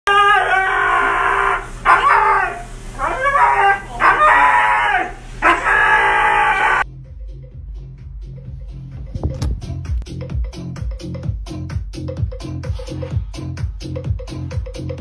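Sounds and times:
dog howling and yowling: 0.1s - 6.8s.

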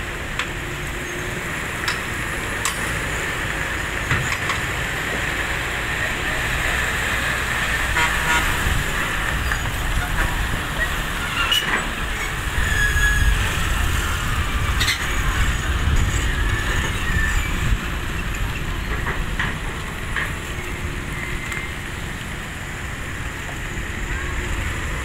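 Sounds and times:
excavator engine rumble: 0.0s - 25.0s
metallic squeaks: 11.2s - 13.6s.

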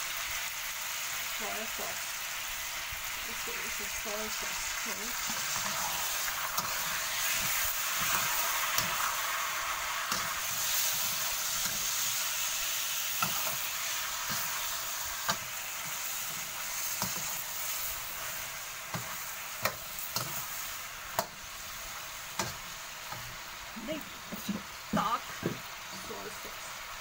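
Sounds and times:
meat sizzling in a wok: 0.0s - 27.0s
metal spatula scraping wok: 4.8s - 23.4s.

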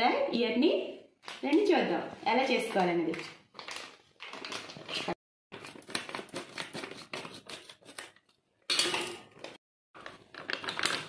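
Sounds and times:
plastic packet crinkling: 3.1s - 7.4s, 10.0s - 11.0s.

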